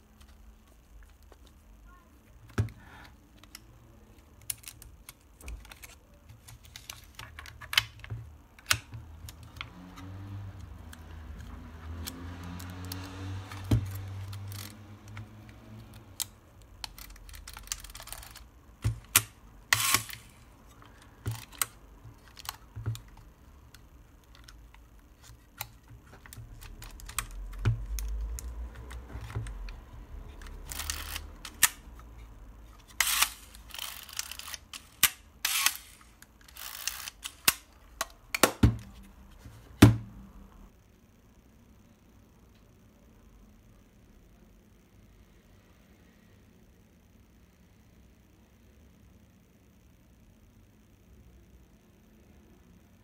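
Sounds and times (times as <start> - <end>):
film being loaded into camera: 10.9 - 15.3, 30.4 - 31.8, 32.9 - 38.1.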